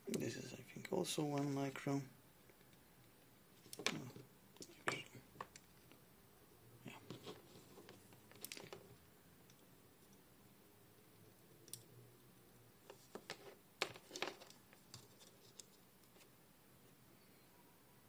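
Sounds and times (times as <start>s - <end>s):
test clips clicking and scraping: 12.8s - 16.3s.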